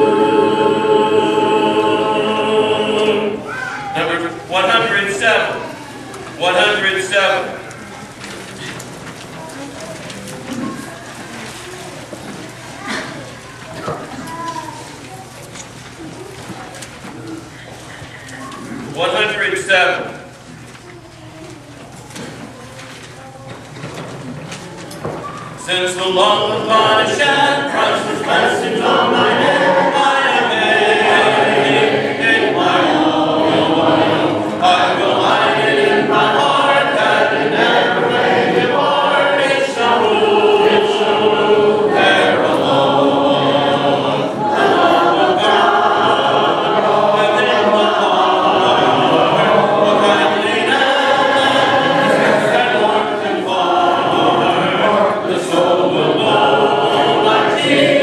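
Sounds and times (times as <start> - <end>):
congregation singing a hymn: 0.0 - 5.8, 6.4 - 9.0, 17.0 - 20.4, 25.0 - 58.0.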